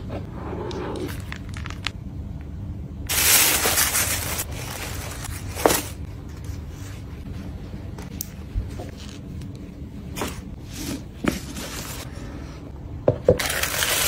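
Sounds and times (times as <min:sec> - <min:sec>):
low steady hum: 0:00.0 - 0:14.0
tissue paper rustling: 0:03.1 - 0:07.1, 0:10.7 - 0:12.1.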